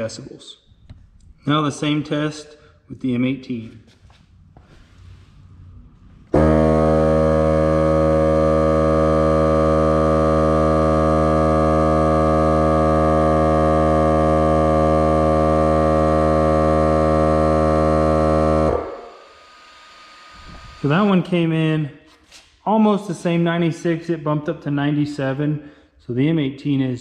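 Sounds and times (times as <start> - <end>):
tire inflator compressor running: 6.2 - 21.0.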